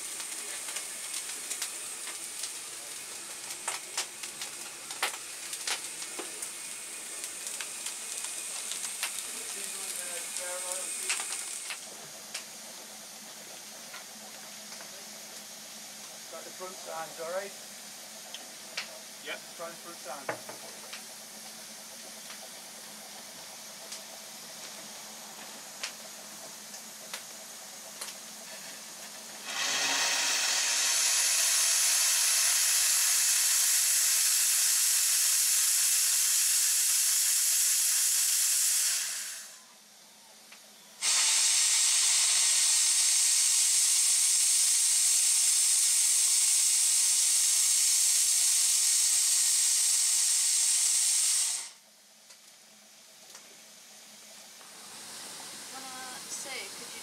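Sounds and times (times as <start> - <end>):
loud steam hiss: 0.0 - 13.2, 14.5 - 18.2, 19.0 - 21.9, 22.7 - 39.7, 41.0 - 51.8, 53.6 - 57.0.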